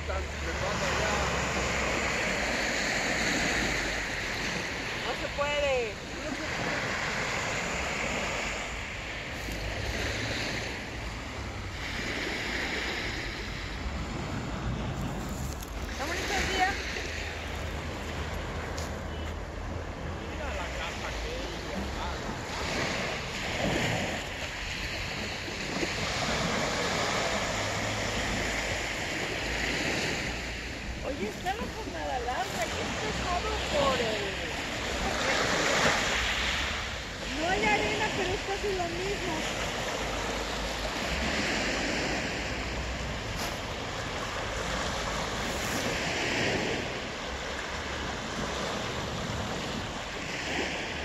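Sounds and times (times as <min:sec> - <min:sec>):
waves washing onto pebble beach: 0:00.0 - 0:51.0
wind rumble on microphone: 0:00.0 - 0:51.0
wind buffeting microphone: 0:00.6 - 0:20.3.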